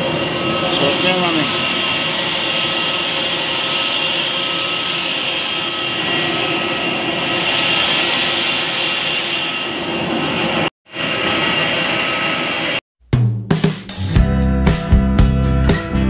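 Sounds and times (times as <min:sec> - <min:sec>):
aircraft engines roaring: 0:00.0 - 0:12.8.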